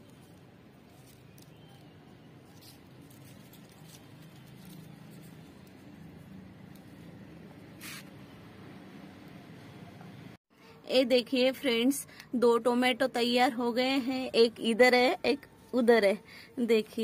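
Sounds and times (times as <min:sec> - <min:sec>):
plant leaves rustling: 0:00.0 - 0:07.1
short brushing sound: 0:07.7 - 0:08.2.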